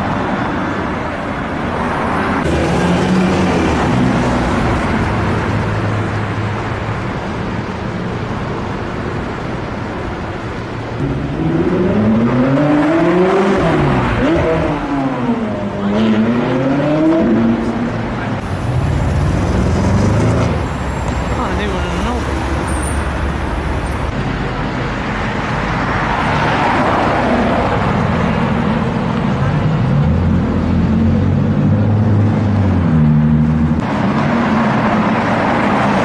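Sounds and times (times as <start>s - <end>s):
engine revving: 11.0s - 20.8s.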